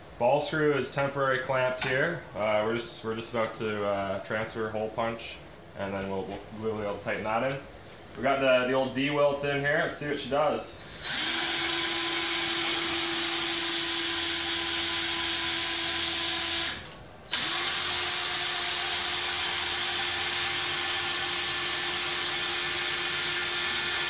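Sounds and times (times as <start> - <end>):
cordless drill running: 10.8 - 24.0.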